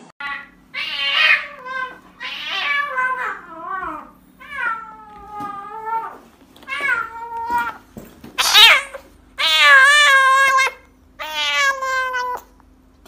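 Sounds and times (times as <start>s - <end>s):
kitten meowing loudly: 8.4s - 12.5s.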